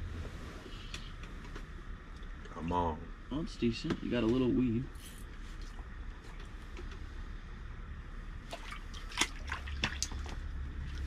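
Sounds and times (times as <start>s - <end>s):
low steady hum: 0.0s - 11.0s
water splashing and dripping: 8.4s - 11.0s.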